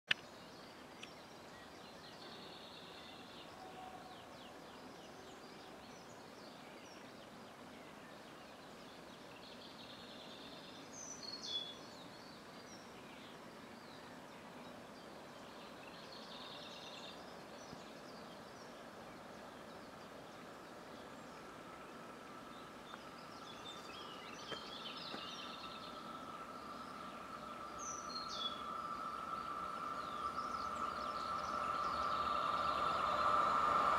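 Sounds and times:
songbirds singing: 0.1s - 33.9s
electric freight train approaching: 18.8s - 33.9s.

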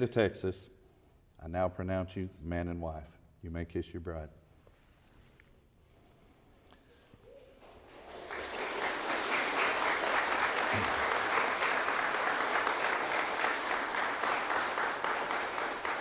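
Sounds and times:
crowd applauding: 7.3s - 16.0s.

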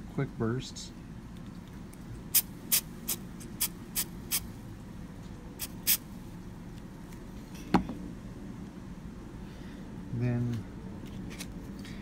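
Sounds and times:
aerosol can spraying in bursts: 2.3s - 4.5s, 5.6s - 6.0s.

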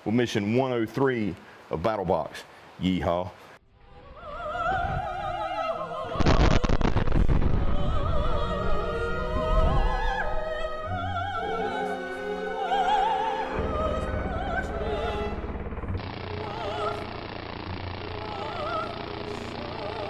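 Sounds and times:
operatic singing with vibrato: 3.8s - 20.0s
loud blast with rumble: 6.2s - 8.8s
orchestral backing: 8.4s - 16.0s.

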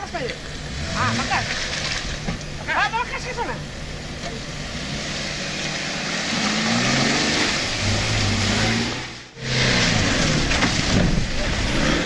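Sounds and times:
off-road vehicle engine revving: 0.0s - 12.0s.

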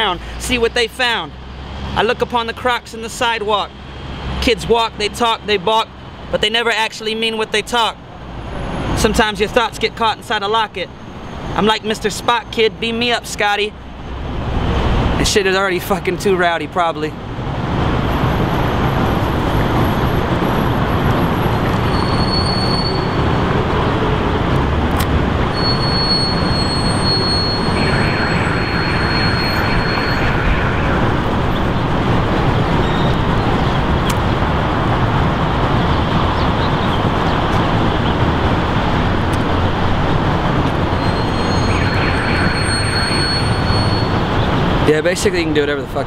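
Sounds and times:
city traffic din: 0.0s - 46.0s
short high-pitched squeals: 21.7s - 23.5s, 25.5s - 31.8s, 40.9s - 44.4s.

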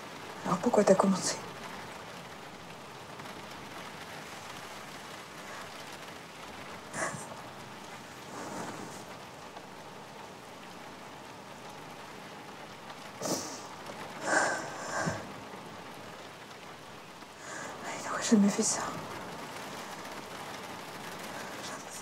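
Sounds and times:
rain on car roof: 0.0s - 22.0s
woman sniffing: 7.0s - 7.3s, 13.2s - 13.6s.

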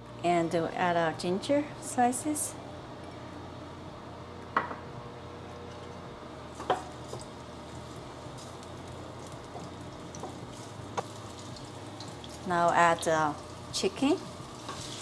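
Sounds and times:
food sizzling in oil: 6.5s - 15.0s.

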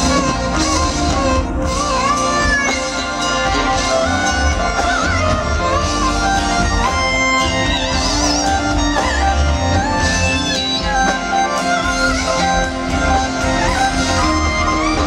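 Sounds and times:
bass and drums: 0.0s - 15.0s
electric guitar sustained notes: 0.0s - 15.0s.

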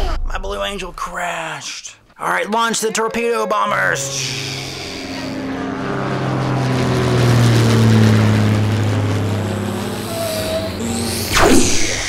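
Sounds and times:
propeller airplane flying past: 2.6s - 12.0s.

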